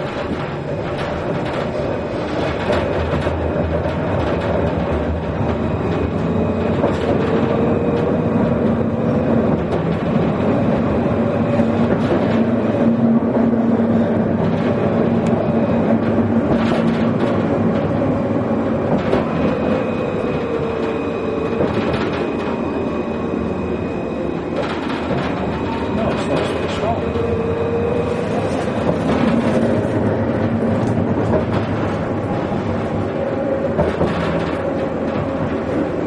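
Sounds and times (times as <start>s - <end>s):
clicks and knocks from track: 0.0s - 22.7s, 24.5s - 27.4s, 28.2s - 36.0s
tram wheels running on rail: 0.0s - 36.0s.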